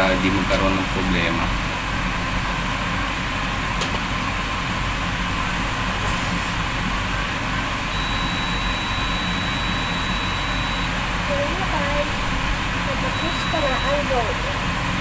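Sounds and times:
low machine hum: 0.0 - 15.0
thin high whine: 7.9 - 12.2, 12.9 - 14.5.

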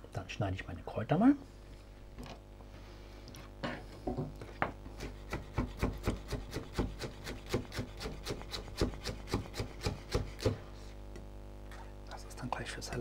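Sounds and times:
knife chopping on wooden board: 4.6 - 10.6.

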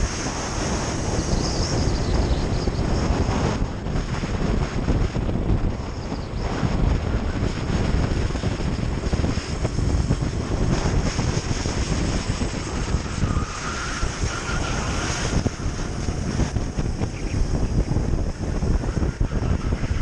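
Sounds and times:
wind buffeting microphone: 0.0 - 20.0
kart engine running: 6.8 - 20.0.

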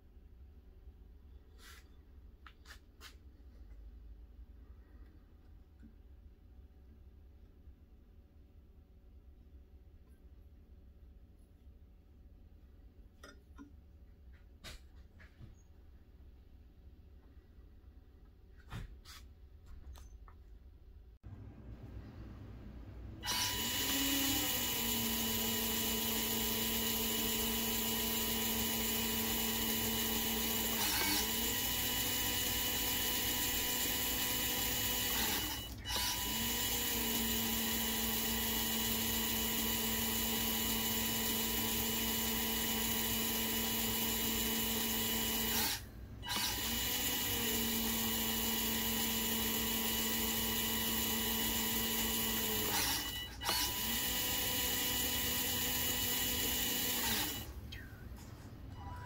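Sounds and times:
hydraulic pump whining: 23.2 - 57.9.

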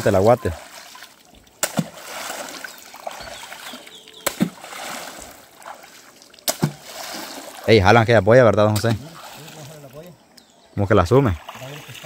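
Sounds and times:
pole smacking water: 0.0 - 7.7, 8.7 - 9.9
water splashing: 0.0 - 10.3, 11.1 - 12.0.

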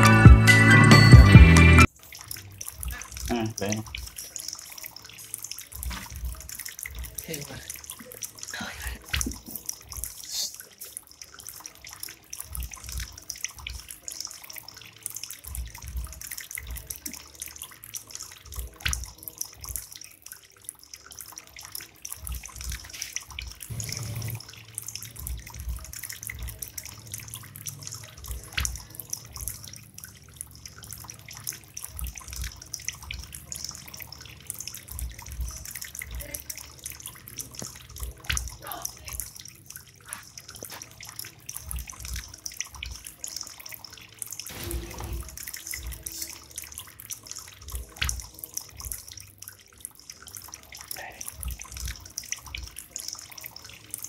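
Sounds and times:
water trickling and splashing: 1.8 - 54.0
dull thumps of bamboo fountain: 5.6 - 8.2, 8.9 - 10.2, 15.4 - 17.4, 18.3 - 19.9, 22.0 - 30.4, 31.2 - 36.2, 37.0 - 39.3, 40.0 - 49.2, 50.6 - 53.6.

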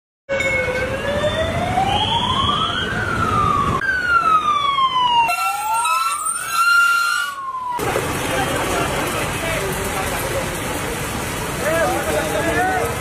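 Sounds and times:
fire engine siren wailing: 0.3 - 10.4.

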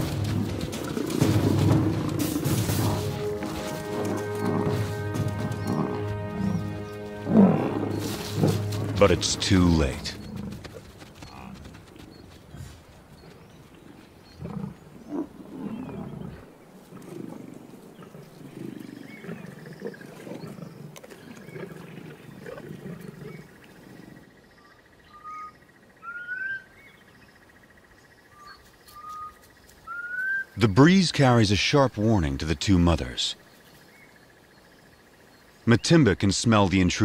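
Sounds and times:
lions growling: 0.0 - 11.8, 12.5 - 24.2
birds whistling: 28.3 - 30.6.

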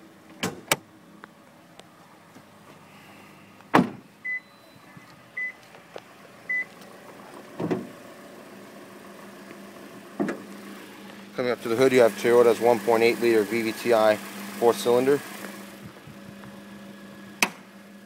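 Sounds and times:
car door shutting: 0.3 - 0.9, 3.7 - 4.1, 6.5 - 8.0, 10.1 - 11.0
high electronic warning beeps: 4.2 - 5.6, 6.5 - 6.7.

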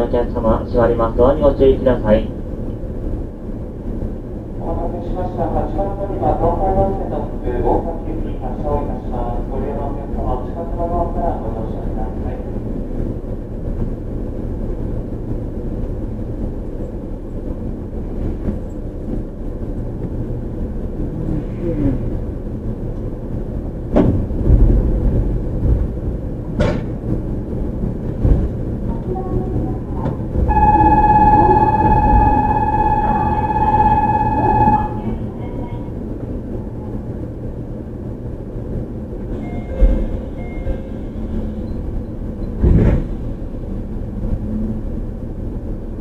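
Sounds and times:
train equipment low hum: 0.0 - 46.0
high electric whine: 30.5 - 35.0.

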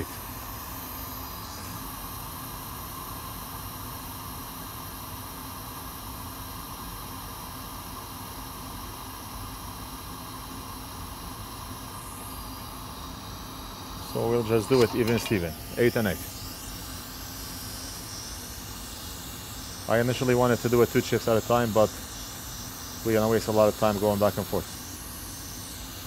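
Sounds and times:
hot air station blowing hiss: 11.0 - 26.0.

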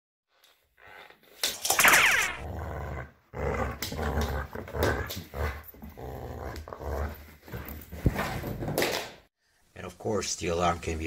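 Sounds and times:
dog growling: 2.2 - 7.7.

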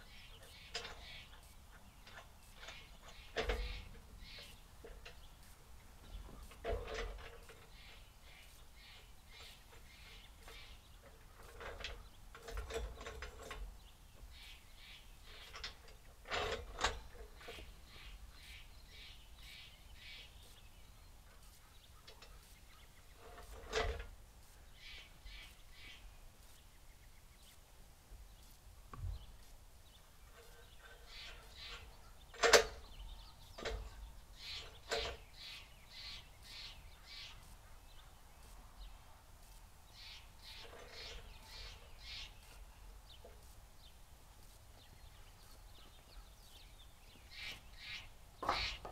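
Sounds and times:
birds chirping: 0.0 - 48.9
metallic knocks and clanks: 0.4 - 5.3, 6.0 - 7.8, 9.4 - 13.8, 15.3 - 17.7, 23.2 - 24.1, 30.4 - 35.3.

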